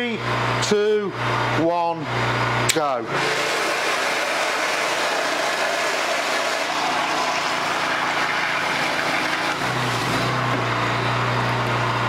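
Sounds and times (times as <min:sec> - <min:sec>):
high-pressure water rushing: 0:03.1 - 0:10.8.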